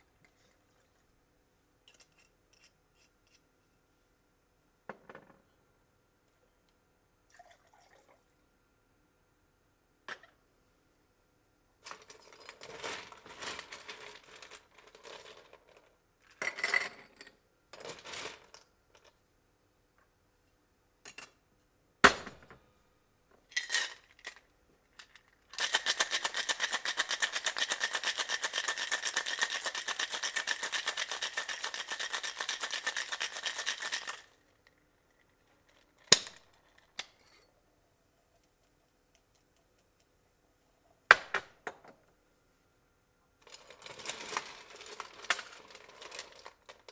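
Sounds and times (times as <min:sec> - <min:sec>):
cocktail shaker rattling with ice: 0:25.0 - 0:34.4, 0:43.4 - 0:46.9.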